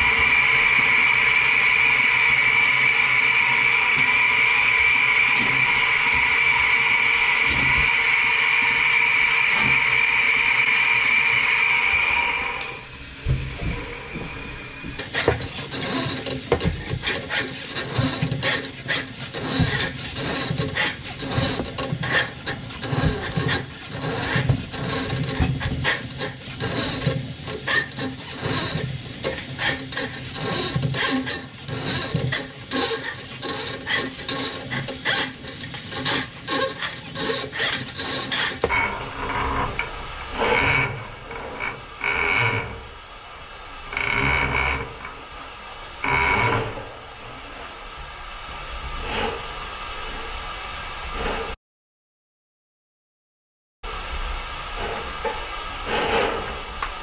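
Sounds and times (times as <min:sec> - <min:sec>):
drain machine whine: 0:00.0 - 0:38.7
steel cable scraping and clicking: 0:15.0 - 0:38.8.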